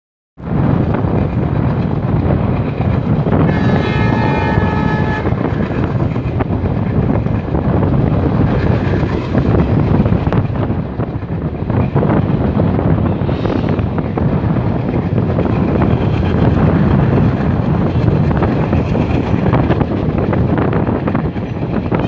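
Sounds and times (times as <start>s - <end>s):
train wheels rumbling: 0.4s - 22.0s
train horn blast: 3.4s - 5.8s.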